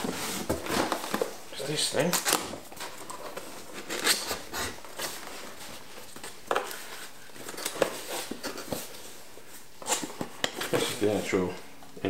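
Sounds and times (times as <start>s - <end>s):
cardboard box rustling and scraping: 0.0s - 1.3s.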